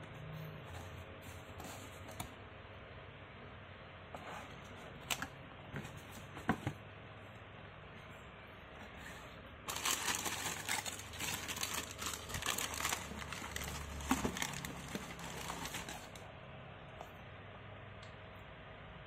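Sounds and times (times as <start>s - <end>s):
tissue paper crinkling: 9.7s - 16.2s.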